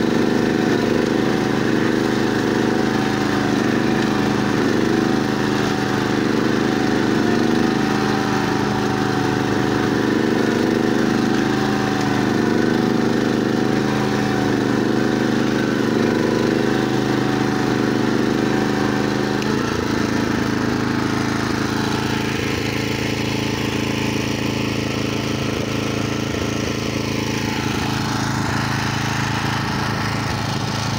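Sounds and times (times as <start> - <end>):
flail mower churning grass: 0.0 - 30.9
small engine running under load: 0.0 - 30.9.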